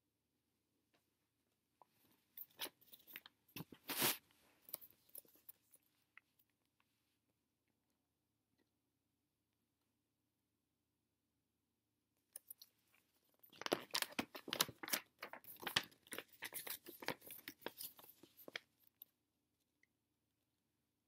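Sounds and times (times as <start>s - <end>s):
paper pages rustling: 3.6s - 4.2s, 13.5s - 18.8s.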